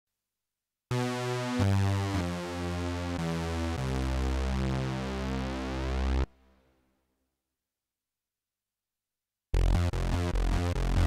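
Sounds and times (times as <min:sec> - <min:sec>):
synthesizer chords: 0:00.9 - 0:06.3, 0:09.6 - 0:11.0
deep synth bass: 0:09.6 - 0:11.0.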